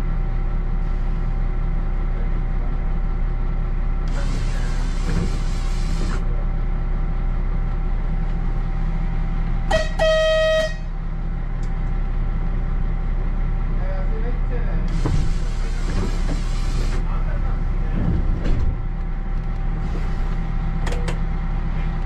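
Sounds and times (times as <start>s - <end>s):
train running drone: 0.0s - 22.0s
train horn blast: 9.7s - 10.9s.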